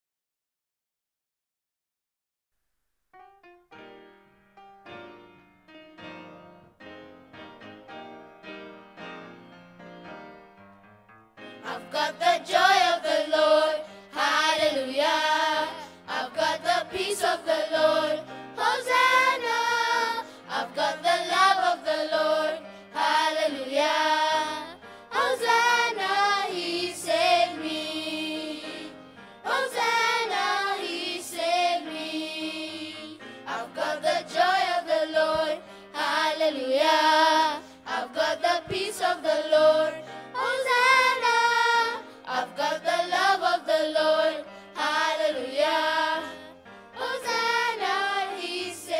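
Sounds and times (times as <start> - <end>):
children's choir singing gospel: 11.6 - 48.9.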